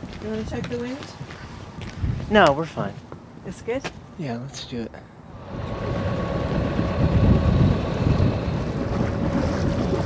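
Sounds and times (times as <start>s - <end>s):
wind rumbling on microphone: 0.0s - 2.4s, 5.3s - 10.0s
boat engine running: 5.3s - 10.0s.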